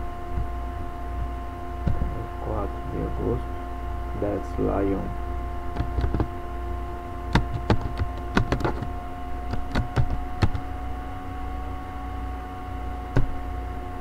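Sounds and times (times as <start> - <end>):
steady electrical hum: 0.0 - 14.0
computer keyboard typing: 5.7 - 6.3, 7.3 - 8.9, 9.5 - 10.6.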